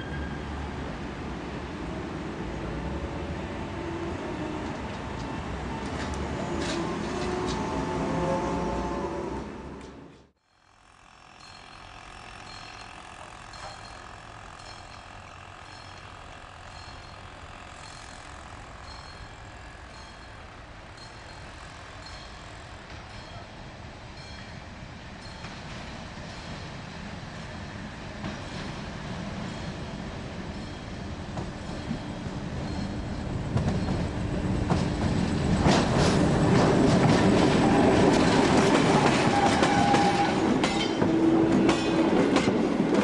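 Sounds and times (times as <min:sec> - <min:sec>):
diesel locomotive engine rumble: 0:00.0 - 0:43.0.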